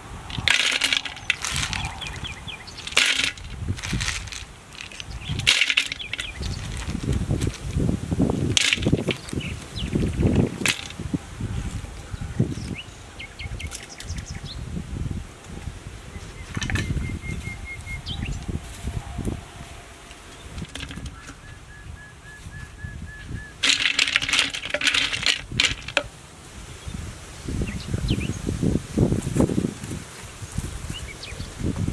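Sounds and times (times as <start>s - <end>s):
herbs rustling: 0.2s - 12.8s, 23.6s - 26.1s.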